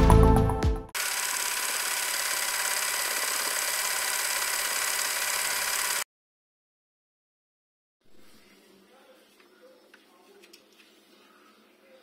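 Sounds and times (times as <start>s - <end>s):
small motor whirring: 1.0s - 6.1s.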